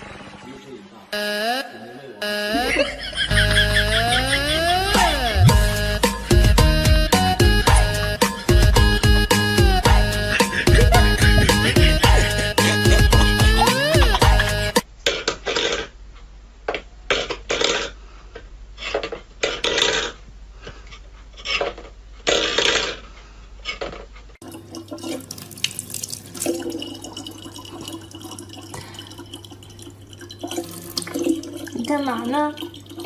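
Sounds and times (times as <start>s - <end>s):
water splashing: 24.4s - 33.0s.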